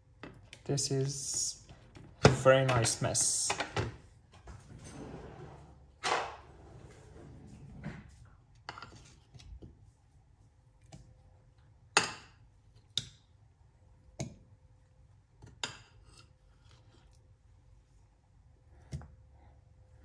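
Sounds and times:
kitchen items clicking and knocking: 0:01.8 - 0:04.0.

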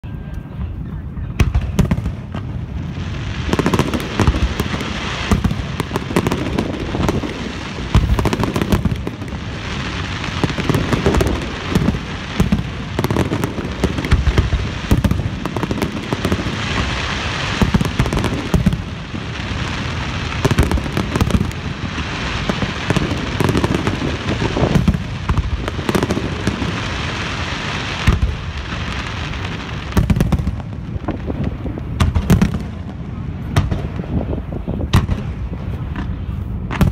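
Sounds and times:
fireworks bursting: 0:00.4 - 0:36.9
crackling hiss: 0:01.4 - 0:36.9.

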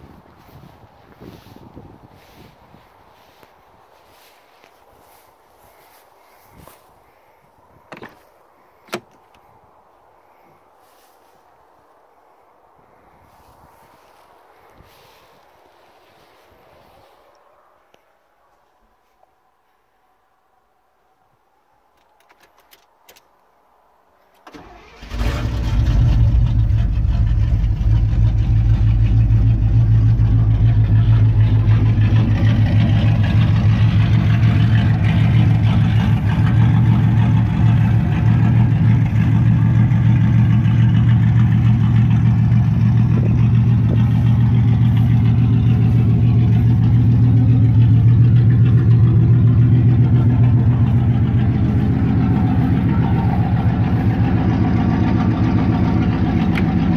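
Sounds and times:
car engine starting and idling: 0:24.4 - 0:56.9.

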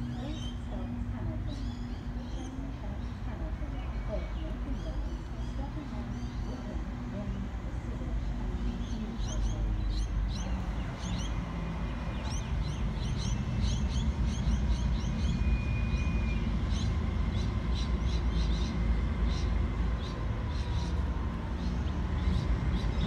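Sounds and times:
diesel locomotive engines rumbling: 0:00.0 - 0:23.0
small birds chirping: 0:08.1 - 0:23.0.

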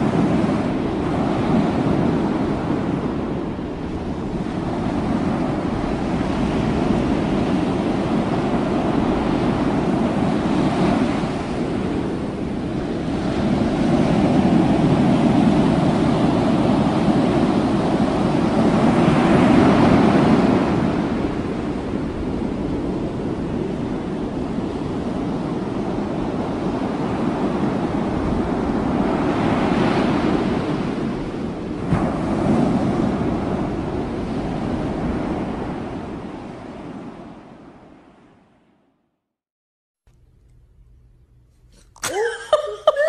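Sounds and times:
wind buffeting microphone: 0:00.0 - 0:37.9
waves breaking: 0:25.0 - 0:38.2.

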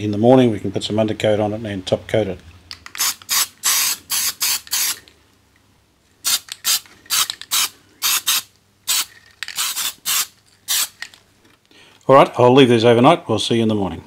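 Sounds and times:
aerosol spray can hissing: 0:03.0 - 0:05.0, 0:06.2 - 0:11.0.

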